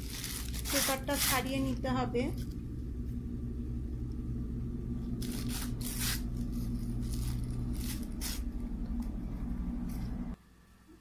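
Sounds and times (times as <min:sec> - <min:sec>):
paper crinkling and tearing: 0:00.0 - 0:01.7, 0:05.2 - 0:08.6
low hum: 0:00.0 - 0:11.0.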